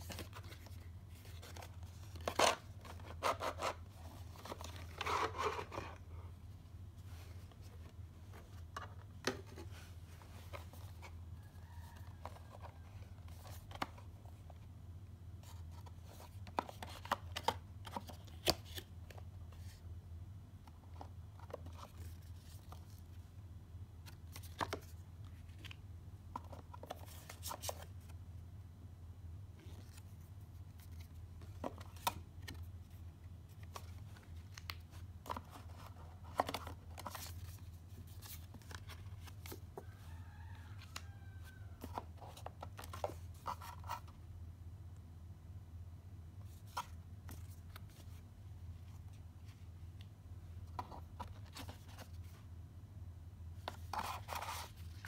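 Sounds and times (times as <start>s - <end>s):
cardboard and paper rustling: 0.0s - 6.2s, 7.0s - 14.6s, 20.7s - 23.3s, 24.0s - 28.2s, 29.6s - 44.2s, 46.4s - 52.5s, 53.6s - 55.0s.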